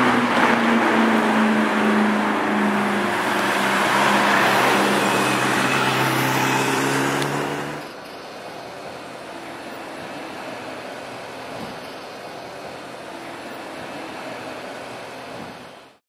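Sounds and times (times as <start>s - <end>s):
loud car exhaust note: 0.0s - 7.9s
passing traffic: 0.0s - 16.0s.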